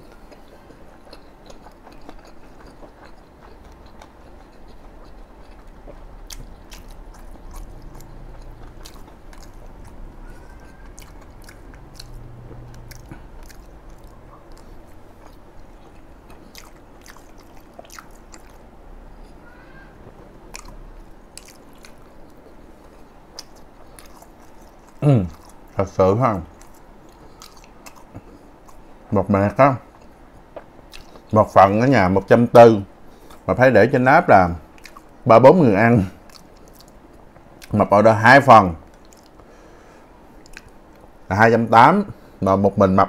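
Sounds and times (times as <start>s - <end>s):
close chewing: 0.0s - 19.4s, 20.0s - 29.1s, 29.9s - 31.4s, 34.7s - 35.2s, 36.2s - 37.8s, 38.9s - 39.5s.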